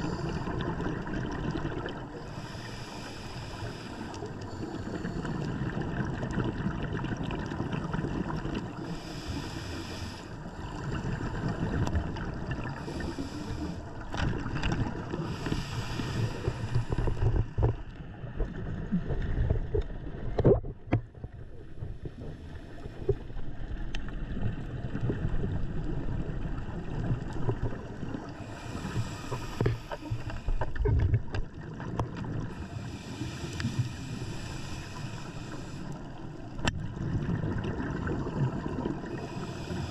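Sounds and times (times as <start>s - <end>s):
bubbling exhaled air: 0.0s - 20.8s, 24.3s - 36.0s, 36.8s - 39.9s
regulator hissing inhalations: 2.1s - 5.4s, 8.8s - 11.3s, 12.7s - 13.9s, 15.2s - 17.6s, 28.4s - 30.8s, 32.5s - 36.1s, 39.1s - 39.9s.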